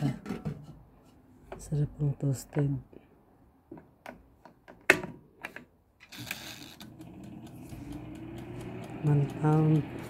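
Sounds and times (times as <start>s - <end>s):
oven fan whirring: 6.4s - 10.0s.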